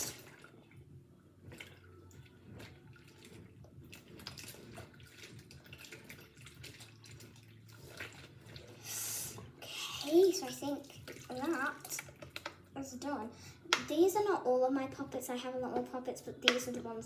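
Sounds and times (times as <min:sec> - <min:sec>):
water dripping: 0:00.0 - 0:12.7
water splashing in a sink: 0:00.0 - 0:13.2.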